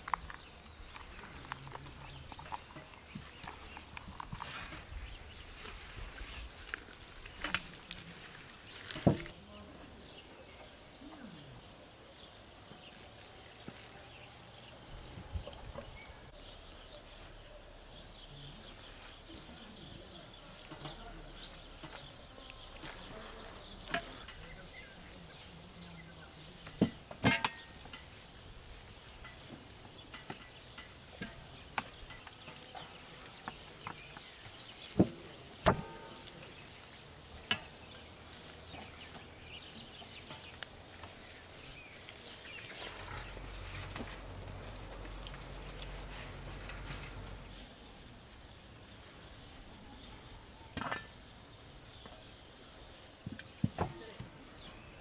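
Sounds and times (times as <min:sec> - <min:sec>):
hands rubbing raw turkey: 0:00.0 - 0:09.3, 0:12.9 - 0:14.8, 0:15.5 - 0:25.7, 0:26.3 - 0:47.6.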